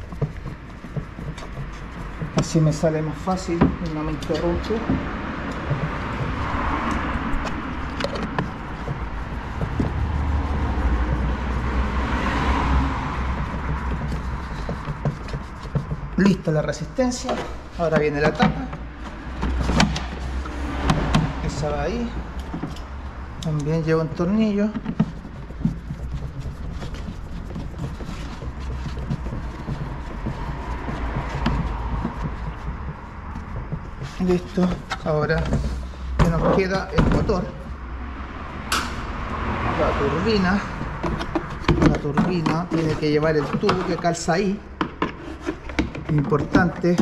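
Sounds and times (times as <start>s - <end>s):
vehicle rumble: 0.0s - 47.0s
clicks and knocks of plastic parts: 40.7s - 47.0s.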